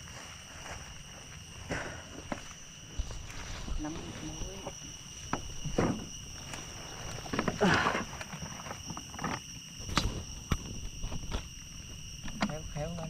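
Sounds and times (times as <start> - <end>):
high-pitched insect drone: 0.0 - 13.0
dry leaves rustling: 2.4 - 7.5.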